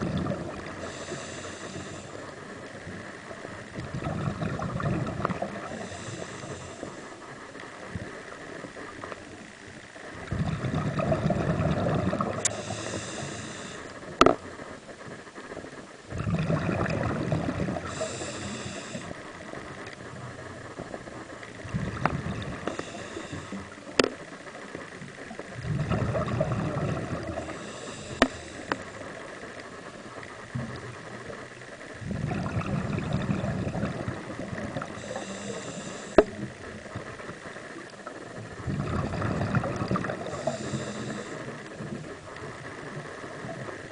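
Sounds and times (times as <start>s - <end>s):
diver breathing through regulator: 0.0s - 2.4s, 5.4s - 7.2s, 12.2s - 14.0s, 17.7s - 19.2s, 22.0s - 24.0s, 26.6s - 29.0s, 33.7s - 36.6s, 39.7s - 41.8s.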